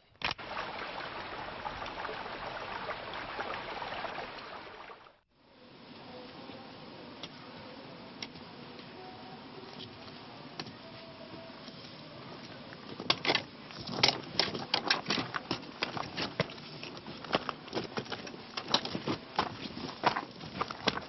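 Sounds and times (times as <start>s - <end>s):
steady background hiss: 0.4s - 21.0s
footsteps on gravel: 15.0s - 21.0s.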